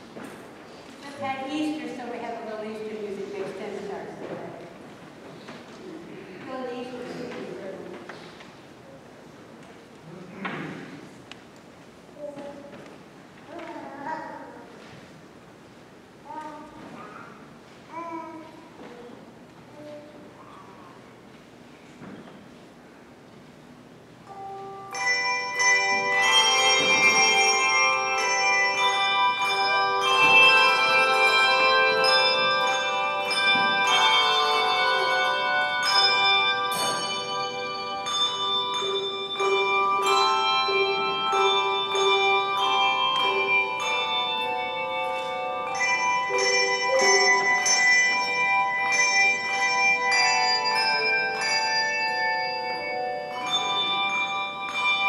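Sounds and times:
handbells ringing: 24.3s - 55.0s.

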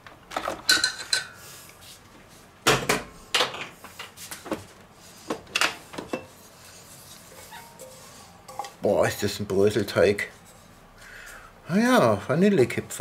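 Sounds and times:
hand scraping dough: 6.3s - 8.5s.

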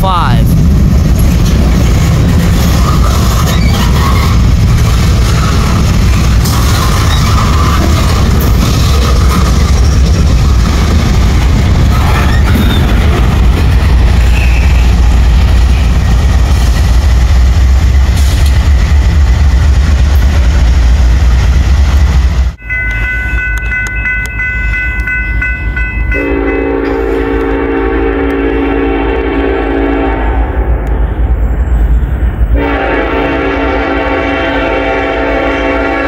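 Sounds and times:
train passing rumble: 0.0s - 36.0s
locomotive air horn: 26.2s - 30.6s, 32.6s - 36.0s.

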